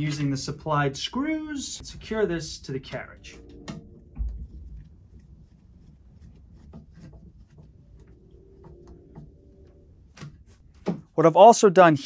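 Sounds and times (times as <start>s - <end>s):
screwdriver rubbing and ticking: 3.6s - 9.3s.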